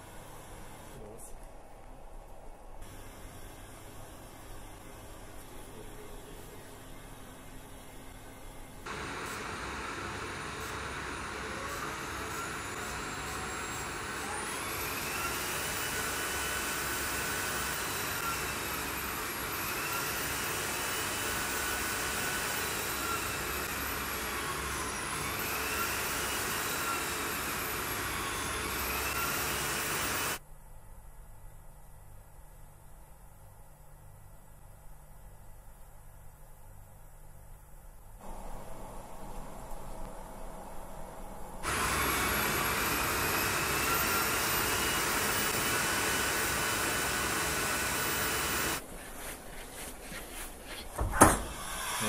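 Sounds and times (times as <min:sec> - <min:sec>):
high machine whine: 0:02.8 - 0:30.4, 0:38.2 - 0:48.8.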